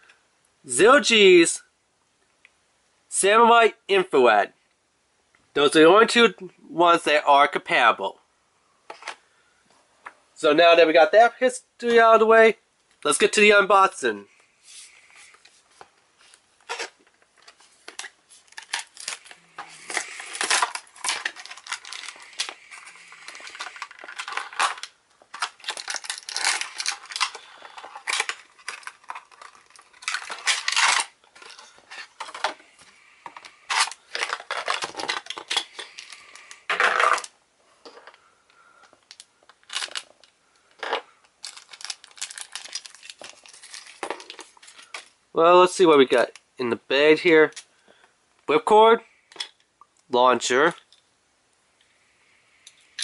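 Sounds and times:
plastic packaging crackling and tearing: 16.3s - 32.6s, 33.3s - 37.4s, 39.0s - 45.1s.

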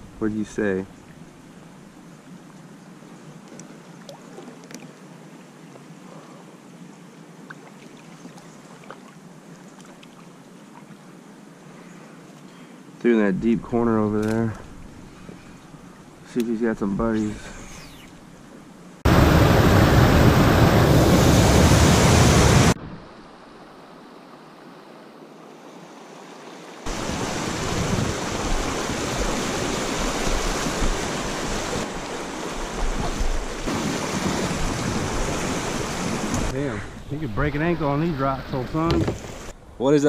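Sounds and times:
river water rushing over rocks: 25.6s - 36.5s
wind noise on microphone: 26.9s - 31.8s.

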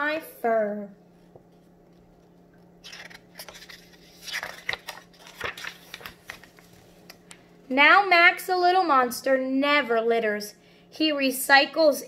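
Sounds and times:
book pages turning: 1.4s - 7.4s.

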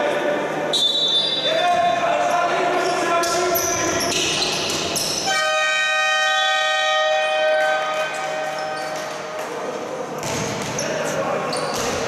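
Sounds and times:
court and crowd noise: 0.0s - 12.0s
arena horn long tone: 5.3s - 8.8s.

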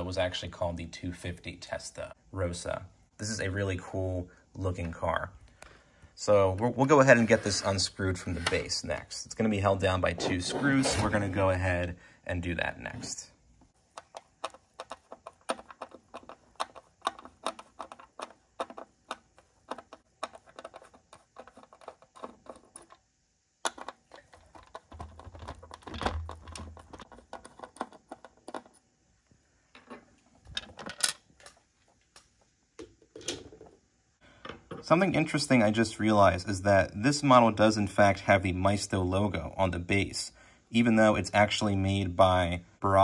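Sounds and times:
screwdriver clicking on plastic: 13.9s - 23.0s.

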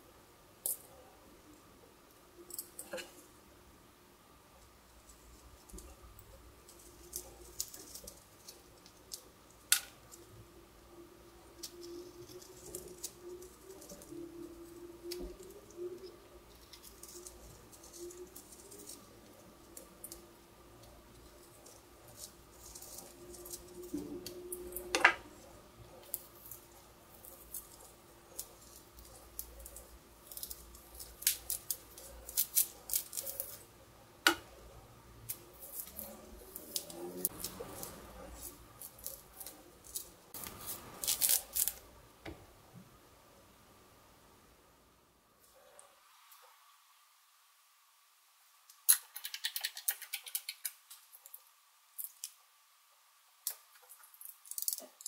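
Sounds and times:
peel tearing by hand: 38.8s - 41.8s.

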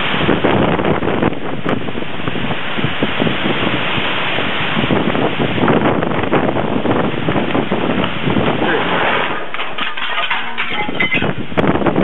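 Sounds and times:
heavy rain: 0.0s - 11.9s
wind buffeting microphone: 0.0s - 12.0s
wind gusting through trees: 0.0s - 12.0s.

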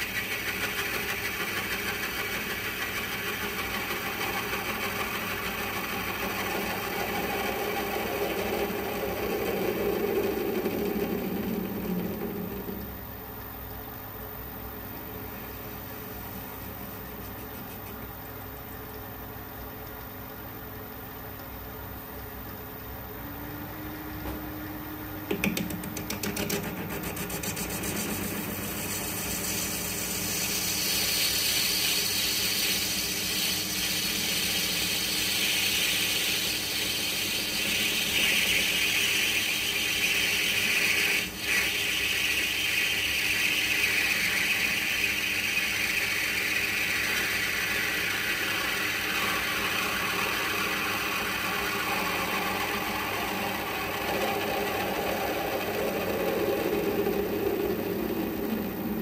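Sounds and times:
lathe tool cutting hiss: 0.0s - 12.9s, 27.1s - 59.0s
lathe hum: 0.0s - 59.0s.

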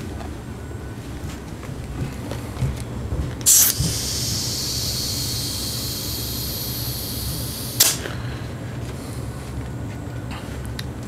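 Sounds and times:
compressed air hissing into tire: 3.4s - 8.2s.

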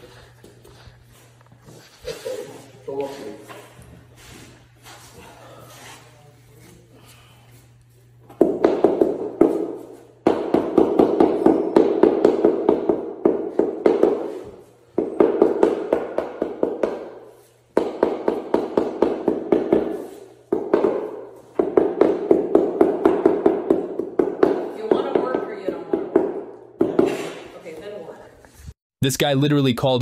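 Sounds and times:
dull tapping on floor tiles: 17.8s - 27.2s.

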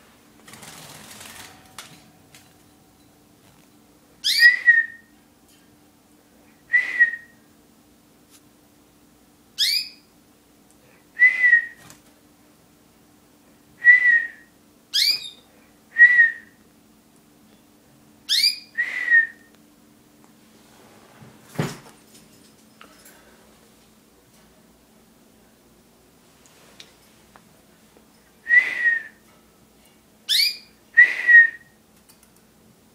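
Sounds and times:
bird chirping: 4.2s - 5.1s, 9.6s - 10.1s, 14.9s - 15.5s, 18.3s - 18.8s, 30.3s - 30.8s
person whistling short notes: 28.5s - 29.2s, 31.0s - 31.8s.

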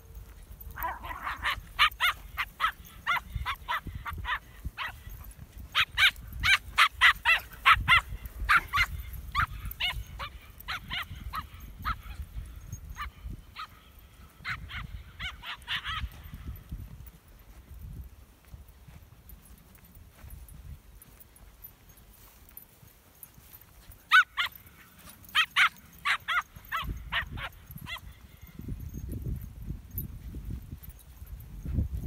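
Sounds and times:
dog barking: 0.8s - 5.1s, 5.8s - 12.2s, 13.0s - 16.1s, 25.4s - 28.1s.

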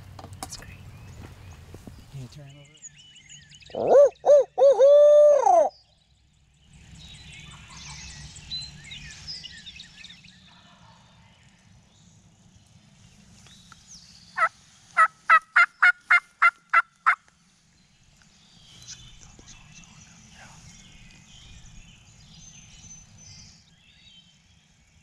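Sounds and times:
faint birdsong: 0.0s - 25.0s
owl-like hoot: 3.7s - 5.7s
turkey yelps: 3.7s - 5.7s, 15.0s - 17.2s.

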